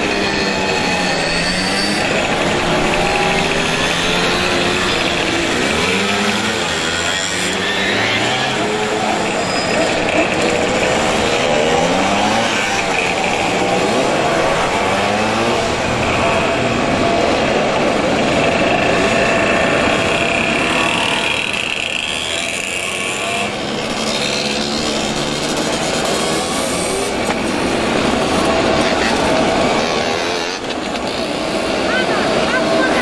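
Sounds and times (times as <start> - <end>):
mopeds and motorcycles riding past: 0.0 - 33.0.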